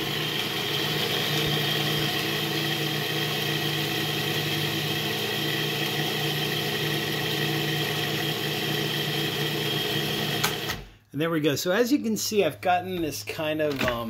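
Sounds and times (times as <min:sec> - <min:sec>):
food processor motor whining: 0:00.0 - 0:10.9.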